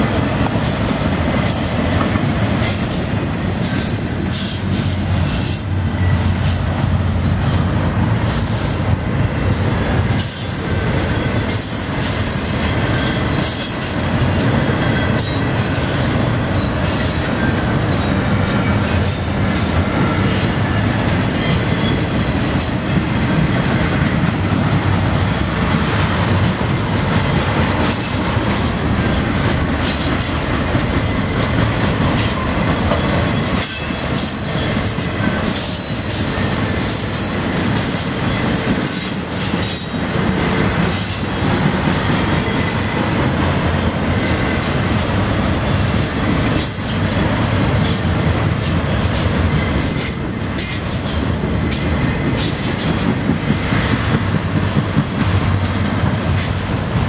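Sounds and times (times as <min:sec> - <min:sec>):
rail joint clacks: 0:00.0 - 0:57.0
train wheels rumbling on rails: 0:00.0 - 0:57.0
wheel squeal: 0:03.8 - 0:06.7.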